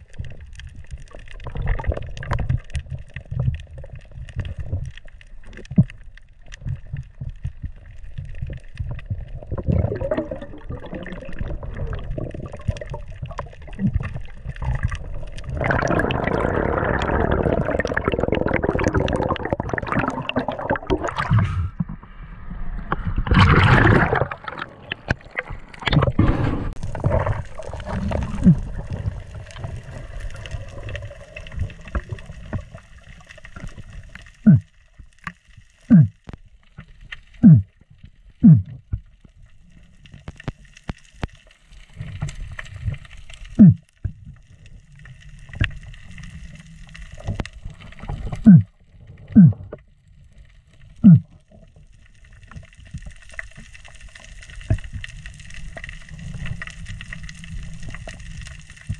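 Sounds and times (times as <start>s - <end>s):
water gurgling and rushing: 0.0s - 34.8s, 41.9s - 49.9s.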